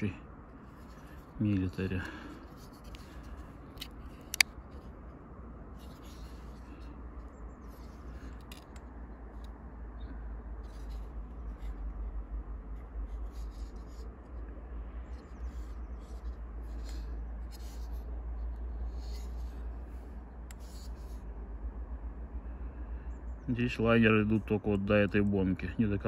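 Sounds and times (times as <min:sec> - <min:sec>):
steady low rumble: 0:00.0 - 0:26.0
hands rubbing and scratching knife: 0:00.6 - 0:05.0, 0:05.8 - 0:09.6, 0:12.8 - 0:21.2.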